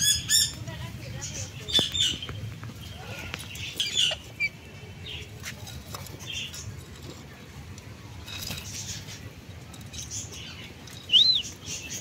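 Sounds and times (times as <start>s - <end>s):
parakeets squawking: 0.0s - 5.3s.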